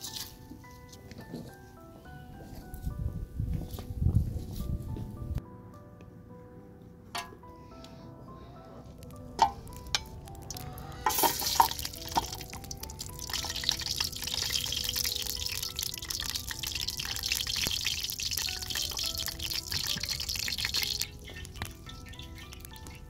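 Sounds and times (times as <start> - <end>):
onions sizzling in oil: 10.4 - 22.8.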